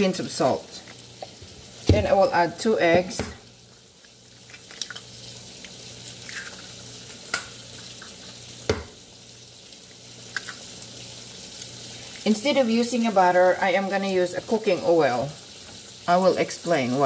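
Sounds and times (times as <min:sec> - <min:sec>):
bacon sizzling: 0:00.0 - 0:17.0
eggs cracked on glass bowl: 0:04.0 - 0:05.1, 0:06.2 - 0:08.9, 0:10.3 - 0:10.6.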